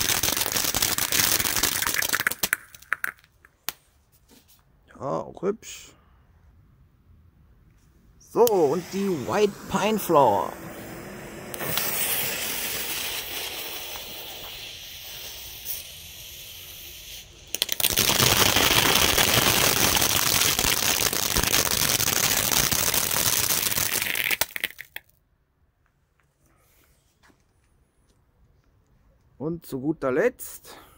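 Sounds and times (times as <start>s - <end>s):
firework fountain hissing and crackling: 0.0s - 3.2s, 8.4s - 25.0s
lit fuse sputtering: 0.0s - 3.4s, 11.5s - 25.0s.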